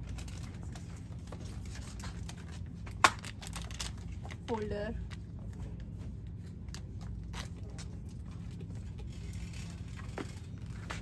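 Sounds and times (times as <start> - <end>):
low hum of shop background: 0.0 - 11.0
shopping cart rolling: 7.3 - 11.0.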